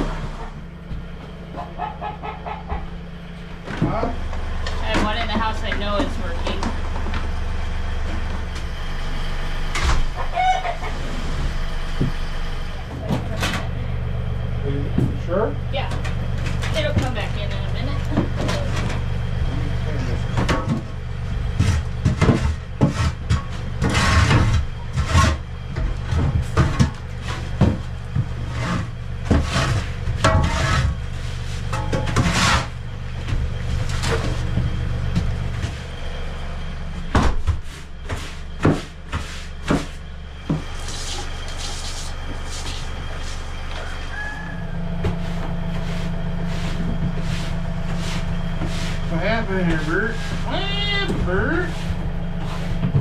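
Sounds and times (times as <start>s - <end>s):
steady low hum: 0.0s - 53.0s
shovel scraping wooden floor: 21.4s - 35.9s, 37.4s - 44.3s, 45.0s - 53.0s.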